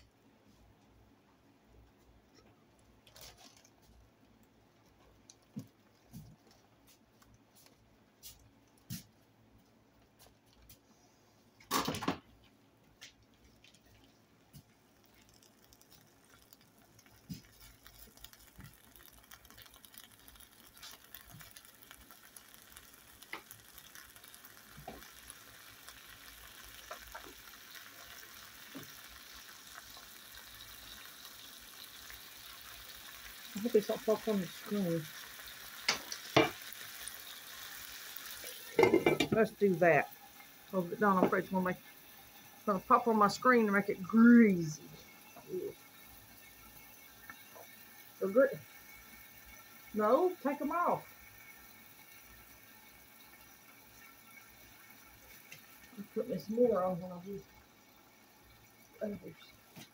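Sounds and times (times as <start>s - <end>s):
bacon sizzling in frying pan: 13.6s - 59.9s.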